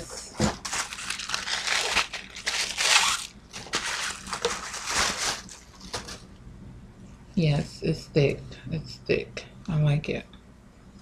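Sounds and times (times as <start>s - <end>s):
wrapping crinkling and rustling: 0.4s - 6.3s.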